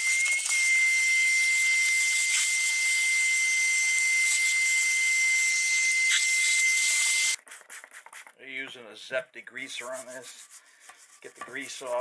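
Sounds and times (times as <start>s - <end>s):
high whistle from nozzle: 0.0s - 7.4s.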